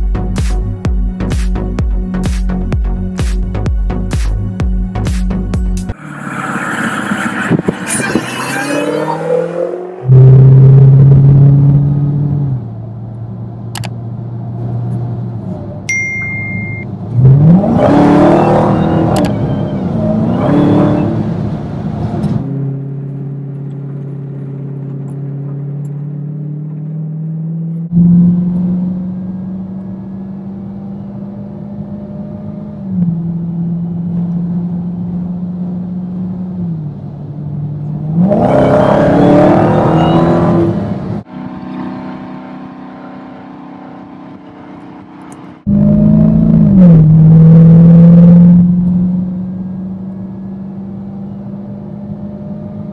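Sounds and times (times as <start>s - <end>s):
car engine revving: 5.3s - 12.9s, 17.0s - 52.9s.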